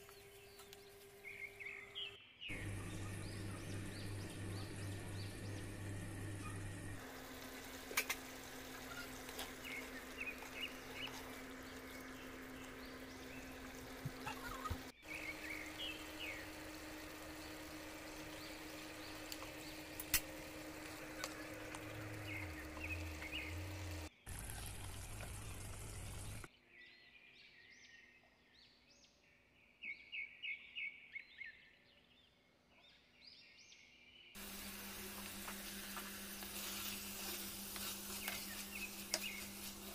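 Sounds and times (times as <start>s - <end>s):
low hum: 2.5s - 26.5s.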